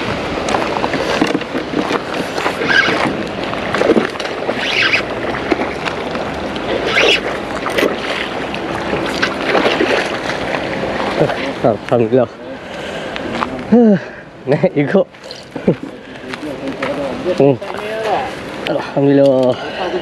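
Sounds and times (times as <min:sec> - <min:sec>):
fish splashing: 0:00.0 - 0:11.9
wind and water noise: 0:00.0 - 0:20.0.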